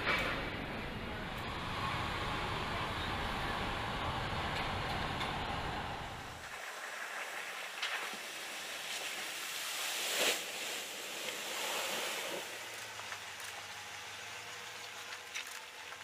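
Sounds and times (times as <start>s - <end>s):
water splashing and sloshing: 6.4s - 16.0s.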